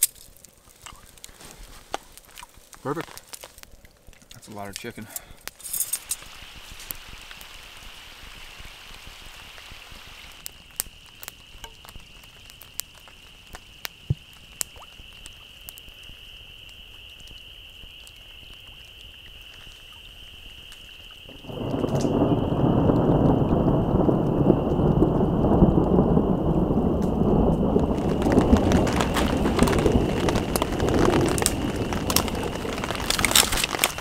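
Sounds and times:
raindrop ticks: 0.0s - 7.6s, 10.3s - 34.0s
faint rain patter: 0.0s - 34.0s
high-pitched frog chorus: 14.1s - 25.0s.

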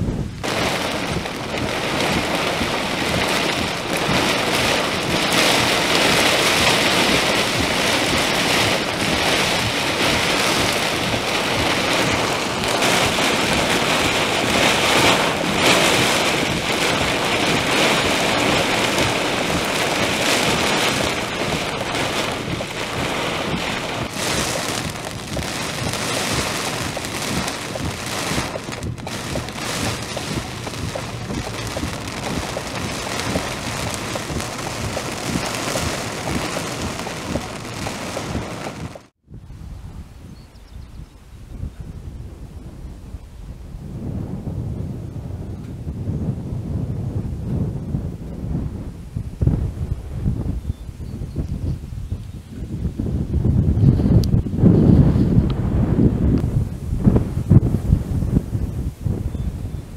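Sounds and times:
heavy rain pelting a car: 0.0s - 39.2s.

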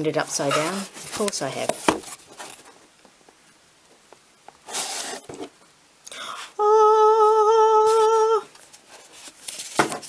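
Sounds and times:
woman humming a held note: 6.6s - 8.5s.

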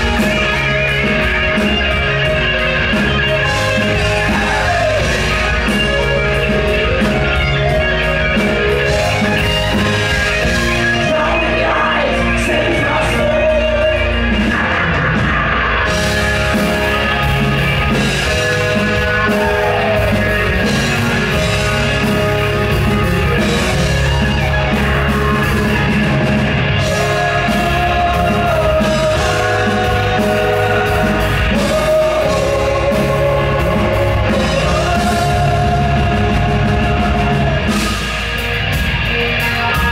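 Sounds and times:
bass guitar: 0.0s - 39.9s
drum kit: 0.0s - 39.9s
electric guitar: 0.0s - 39.9s
keyboards: 0.0s - 39.9s
man singing: 3.4s - 7.1s, 10.8s - 14.6s, 26.8s - 37.9s.

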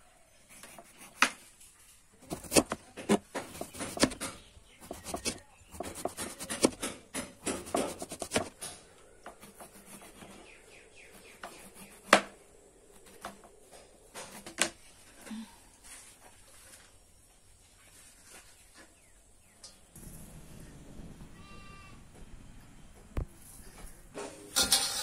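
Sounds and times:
light rubbing of florets: 0.4s - 17.0s
knife chopping on cutting board: 2.2s - 8.6s.

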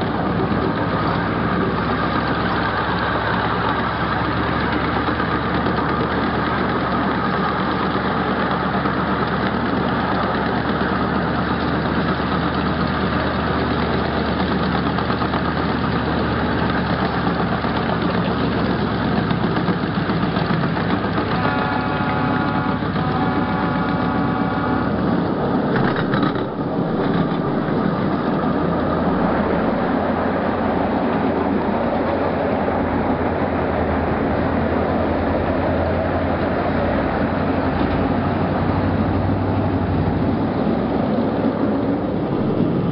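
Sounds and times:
miniature train running on rails: 0.0s - 42.9s.

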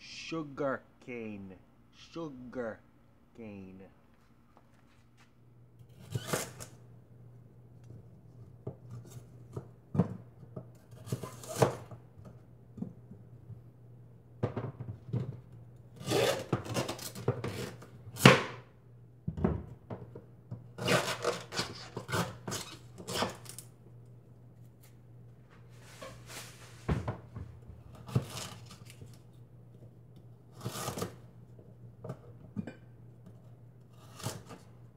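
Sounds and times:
knife scraping sugar cane rind: 5.9s - 6.7s, 10.9s - 11.8s, 16.0s - 17.8s, 20.8s - 23.6s, 28.0s - 29.0s, 30.6s - 31.2s, 33.9s - 34.7s.

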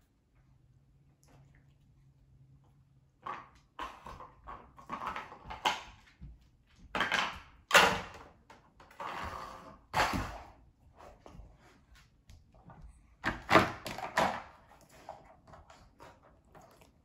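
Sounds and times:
plastic toys knocking on wooden floor: 6.9s - 8.3s.

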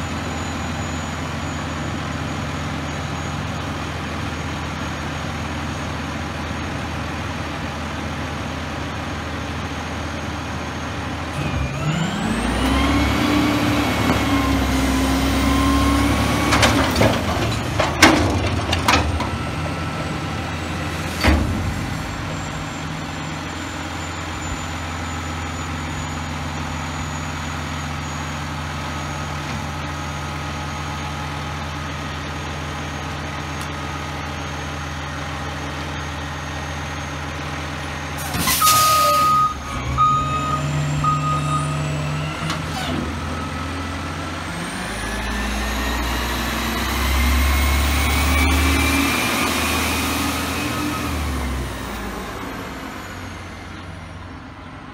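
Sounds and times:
reversing beeps: 0.0s - 6.0s, 18.9s - 31.3s, 35.7s - 49.5s
truck engine idling and revving: 0.0s - 54.9s.

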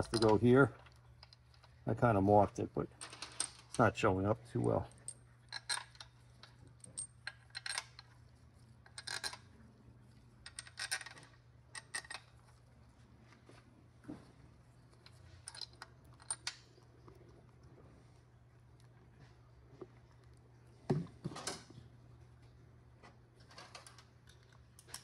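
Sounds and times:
metal bolts clinking: 0.0s - 0.5s
faint low hum: 0.0s - 25.0s.

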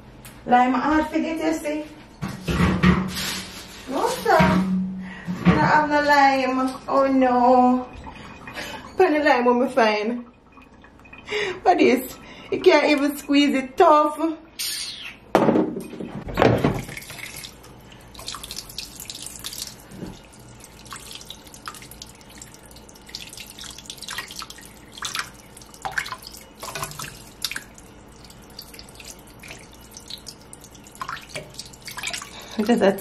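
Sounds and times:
water sloshing and splashing: 5.4s - 13.8s, 15.8s - 33.0s.

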